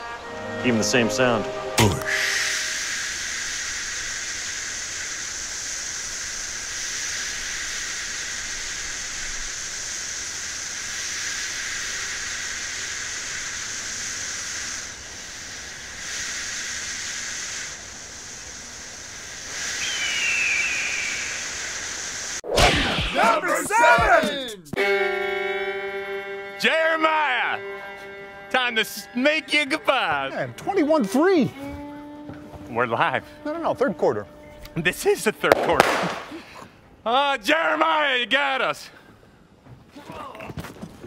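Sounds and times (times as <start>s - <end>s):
high falling whistle: 1.8s - 17.4s, 19.4s - 24.2s
beer can opening hiss: 1.8s - 22.4s.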